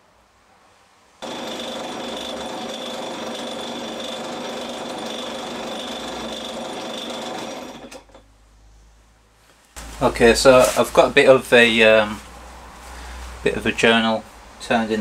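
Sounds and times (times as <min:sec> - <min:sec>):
metal lathe polishing: 0:01.2 - 0:08.1.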